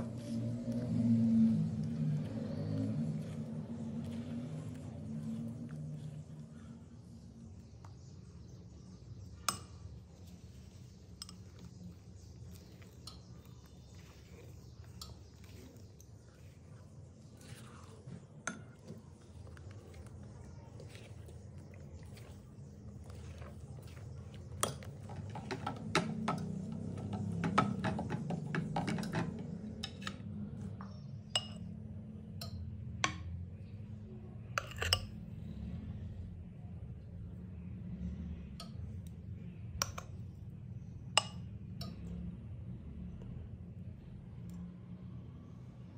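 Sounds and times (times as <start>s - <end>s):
low steady hum: 0.0s - 45.9s
spatula clinking against glass bowl: 31.3s - 31.7s, 34.6s - 35.2s.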